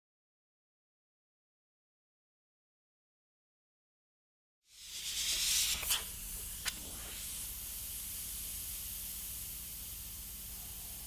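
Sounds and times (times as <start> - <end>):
airbrush spraying hiss: 4.7 - 11.0.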